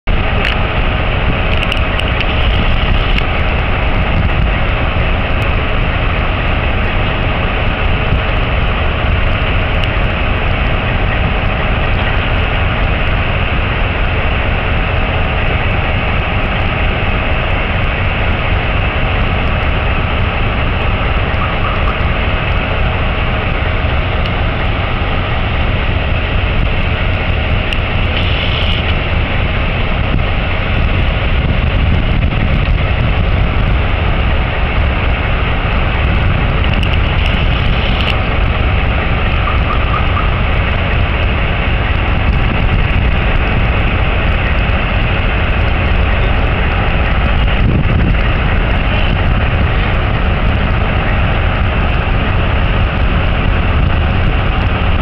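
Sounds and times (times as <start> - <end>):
loud mechanical rumble: 0.0 - 55.0
hiss: 28.0 - 29.0.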